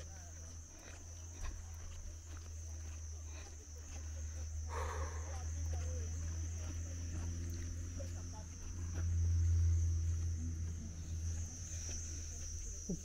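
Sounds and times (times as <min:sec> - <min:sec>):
insects droning: 0:00.0 - 0:13.0
low rumble: 0:07.3 - 0:12.1.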